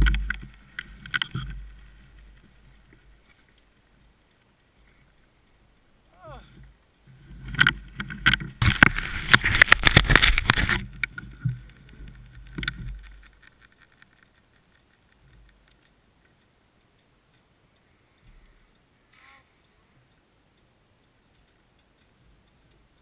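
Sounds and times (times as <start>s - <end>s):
camera handling rustling and knocking: 7.4s - 14.7s.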